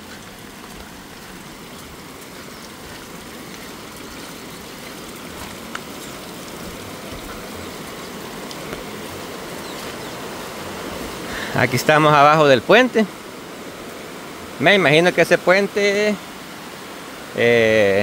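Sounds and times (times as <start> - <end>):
river water rushing: 0.0 - 18.0.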